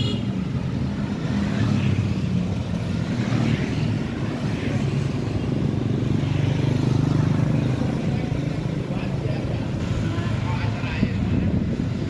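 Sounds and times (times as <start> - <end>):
road noise: 0.0 - 12.0.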